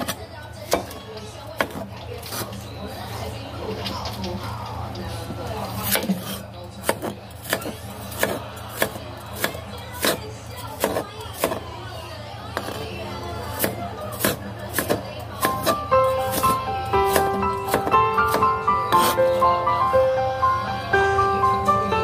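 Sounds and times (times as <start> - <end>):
background music: 15.5 - 22.0.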